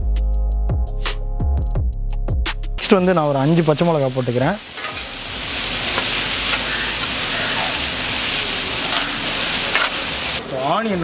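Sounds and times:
onions sizzling in hot oil: 2.8 - 11.0
ladle stirring in iron pan: 4.6 - 10.4.

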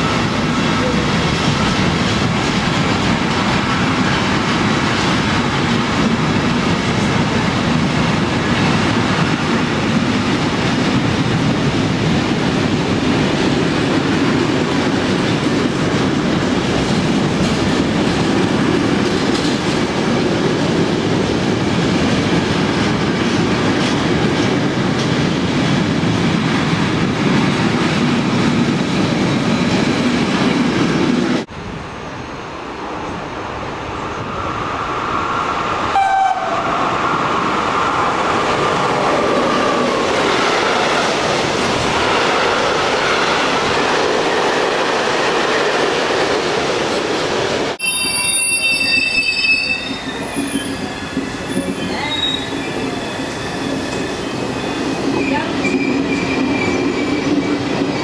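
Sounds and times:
freight trains rolling past: 0.0 - 58.0
train wheels squealing: 47.8 - 58.0.

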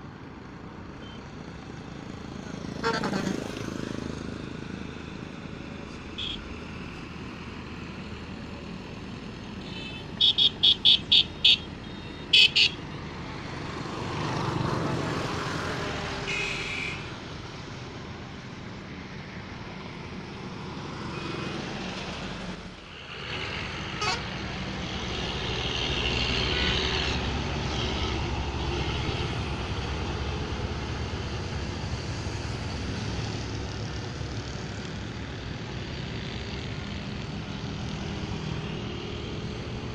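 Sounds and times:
highway traffic rumble: 0.0 - 39.9
vehicle horn toots: 9.6 - 12.8, 16.3 - 17.0.

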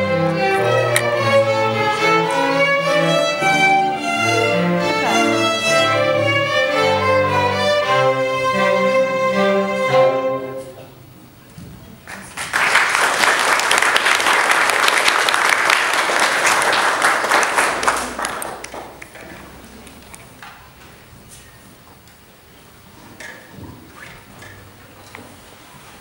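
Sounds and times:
string orchestra chord: 0.0 - 11.0
audience applause: 12.1 - 19.4.

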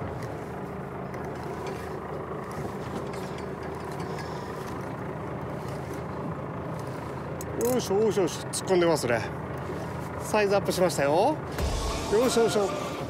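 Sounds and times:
boat engine humming: 0.0 - 13.0
water noise: 0.0 - 13.0.

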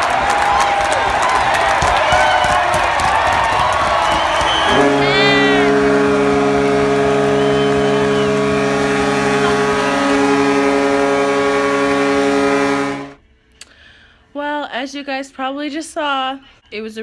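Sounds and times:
crowd cheering: 0.0 - 13.2
goal horn blaring: 3.6 - 13.2.

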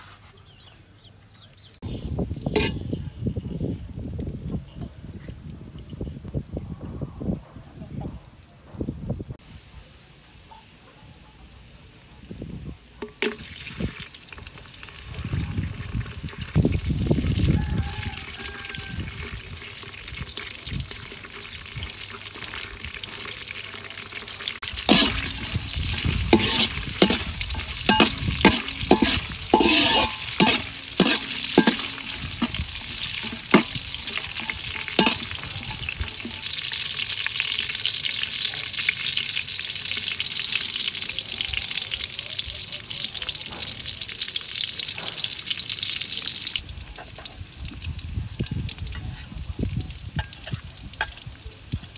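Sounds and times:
metal spatula scraping wok: 2.5 - 2.9, 24.6 - 37.1
garlic sizzling in hot oil: 12.9 - 51.9.

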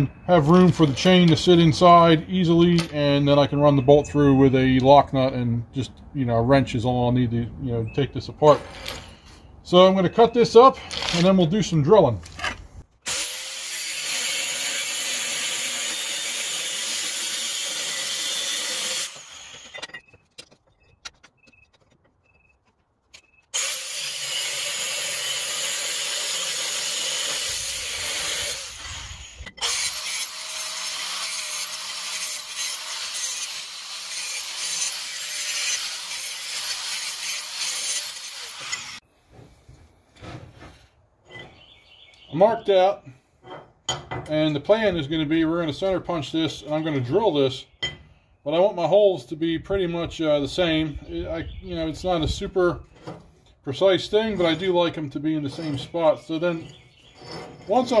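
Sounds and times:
angle grinder cutting steel: 13.1 - 19.9, 23.6 - 39.0.

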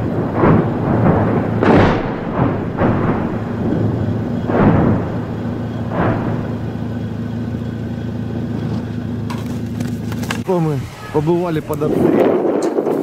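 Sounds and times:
explosions with rumbling decay: 0.0 - 8.6, 11.6 - 13.0
steady low hum: 0.0 - 12.2.

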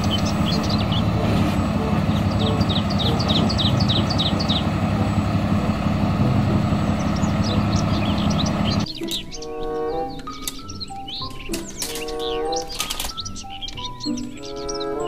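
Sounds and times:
diesel engine running: 0.0 - 8.8
birds chirping: 0.0 - 15.0
light music: 0.0 - 15.0.

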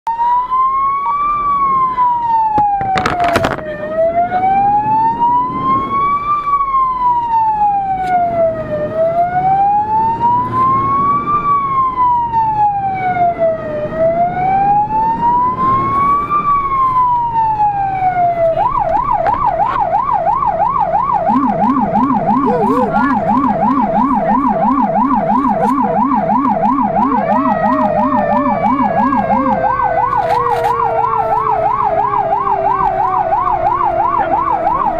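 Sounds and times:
electronic siren wail and yelp: 0.1 - 34.9
slowly falling tone: 21.0 - 34.4
low-pitched rumbler yelp: 21.2 - 30.2.

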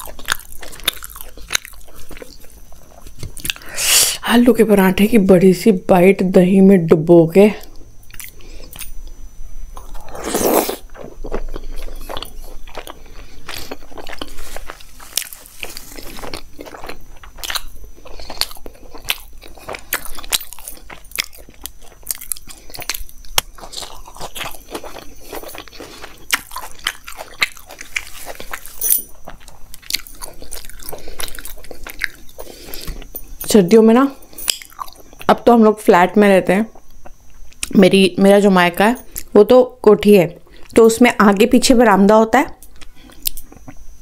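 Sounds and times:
wet chewing mouth sounds: 0.0 - 3.7, 9.8 - 33.3, 34.3 - 35.3.

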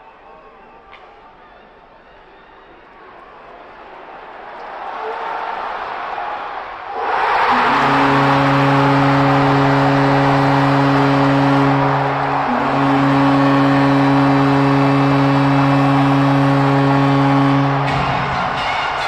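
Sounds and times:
crowd cheering: 0.0 - 19.0
arena goal horn blasts: 7.0 - 19.0.

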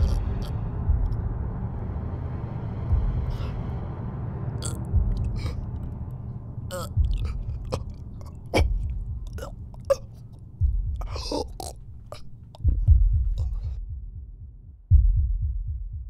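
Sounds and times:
deep low boom: 0.0 - 9.8, 10.6 - 11.4.

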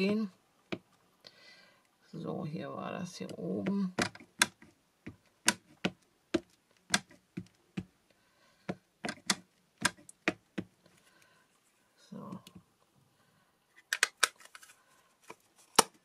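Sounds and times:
ink pad tapping plastic stamp: 3.6 - 7.9, 9.0 - 10.7.

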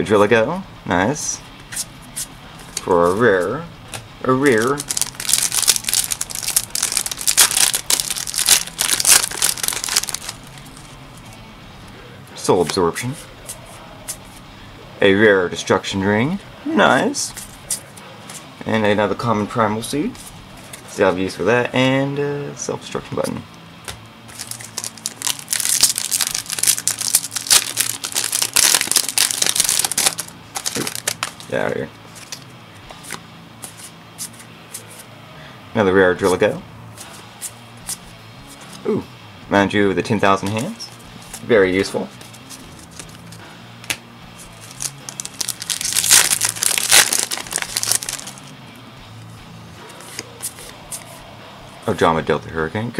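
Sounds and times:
foil wrapper crinkling: 4.7 - 10.5, 24.3 - 31.6, 44.6 - 48.5
wrapper torn open: 4.8 - 10.4, 24.3 - 31.5, 44.6 - 48.5.

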